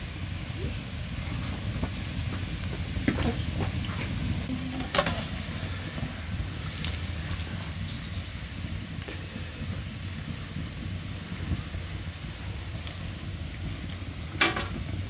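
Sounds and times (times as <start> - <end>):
dough sizzling in hot oil: 0.0 - 15.0
low rumble: 0.0 - 15.0
metal skimmer scraping pan: 4.5 - 5.4.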